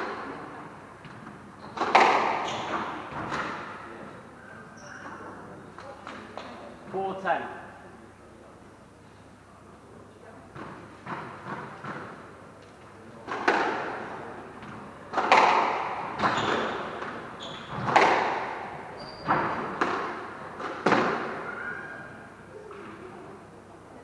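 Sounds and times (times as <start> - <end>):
squash ball hits echoing: 1.8 - 3.8, 13.3 - 21.8
shoes squeaking on wooden floor: 18.9 - 19.6.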